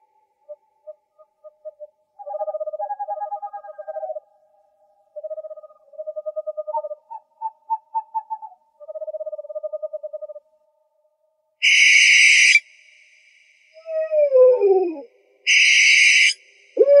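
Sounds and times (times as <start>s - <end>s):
owl trilling calls: 0.4s - 4.2s, 5.2s - 10.4s, 11.6s - 12.6s, 13.8s - 17.0s.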